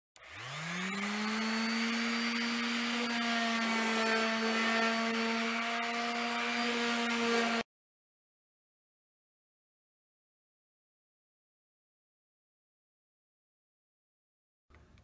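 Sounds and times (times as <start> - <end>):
orbital sander running: 0.2 - 7.6.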